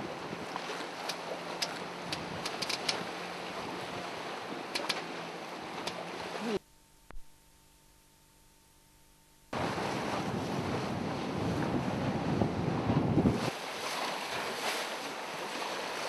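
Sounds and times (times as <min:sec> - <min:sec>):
faint clicks: 0:01.0 - 0:03.0, 0:04.7 - 0:05.0
faint steady hum: 0:06.4 - 0:09.6
wind rushing over microphone: 0:09.6 - 0:13.9
water washing past boat: 0:09.6 - 0:16.0.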